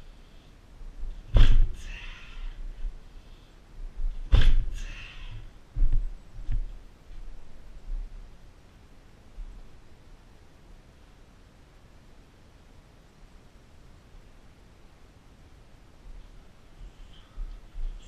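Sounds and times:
heavy thuds: 1.0 - 1.9, 3.8 - 8.2.

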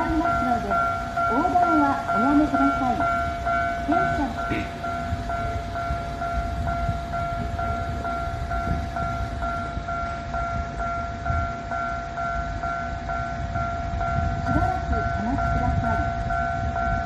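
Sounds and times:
level crossing two-tone bell: 0.0 - 17.0.

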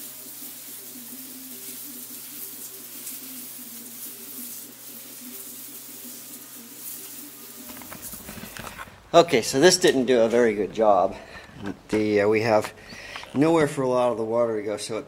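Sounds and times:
hose water spraying on concrete: 0.0 - 8.6.

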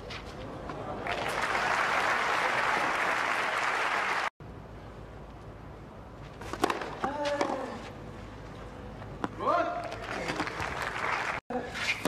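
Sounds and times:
crowd applauding: 1.0 - 4.4, 10.0 - 11.4.

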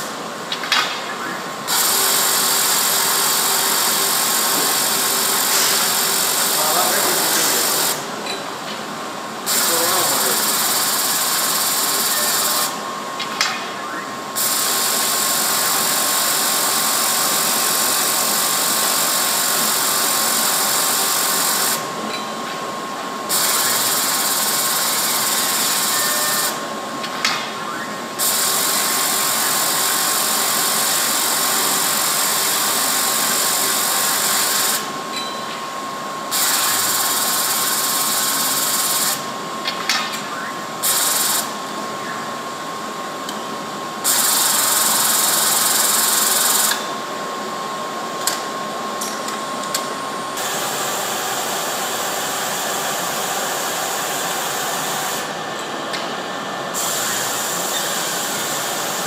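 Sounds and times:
sewing machine whirring: 1.7 - 8.0, 44.0 - 46.8.

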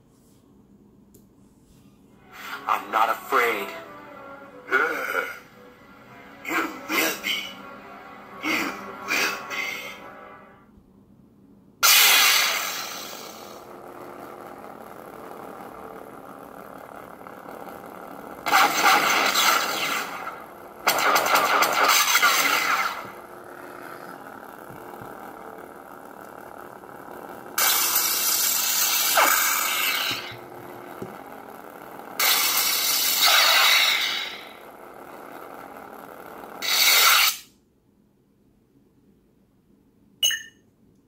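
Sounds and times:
loud lightsaber effect sounds: 11.8 - 13.6, 18.4 - 24.4, 32.2 - 34.6, 36.6 - 37.5
lightsaber blade hum: 11.8 - 34.6
short beep: 40.2 - 40.6.

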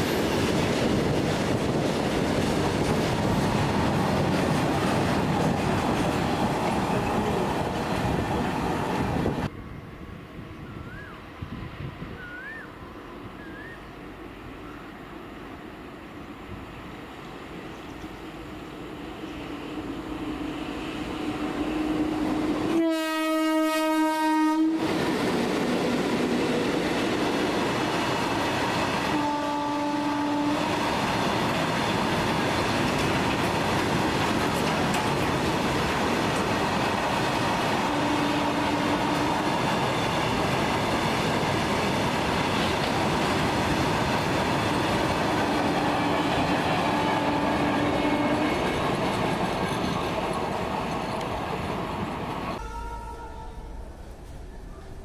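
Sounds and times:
freight train rumble and clickety-clack: 0.0 - 12.6, 16.3 - 52.7
locomotive horn blasts: 21.6 - 24.9, 29.1 - 30.7, 37.8 - 39.3, 52.6 - 54.0.

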